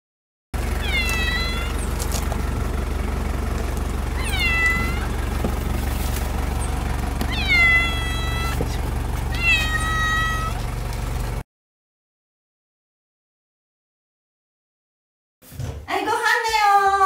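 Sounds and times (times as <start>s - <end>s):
low rumble: 0.6s - 11.4s
cat meowing: 0.8s - 1.9s, 4.2s - 5.2s, 7.2s - 10.6s.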